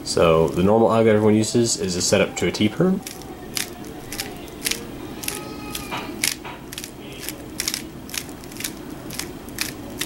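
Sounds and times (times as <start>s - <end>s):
puzzle cube plastic clicks: 6.2s - 10.0s.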